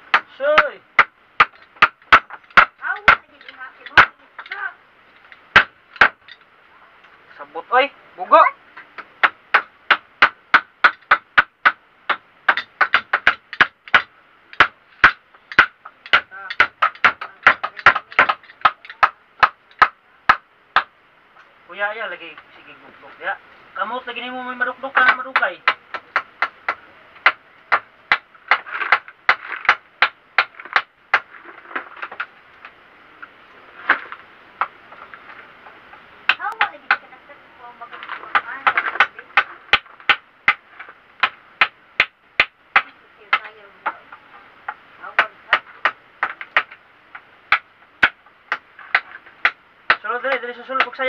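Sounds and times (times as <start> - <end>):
hammer knocking on wood: 9.0 - 20.9.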